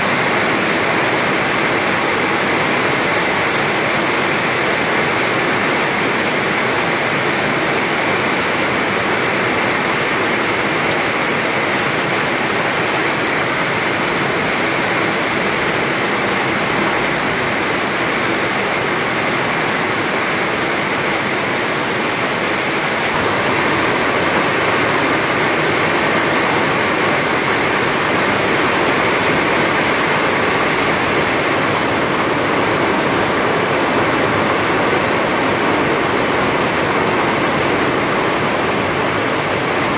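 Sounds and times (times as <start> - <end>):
rain on grass and foliage: 12.8 - 39.9.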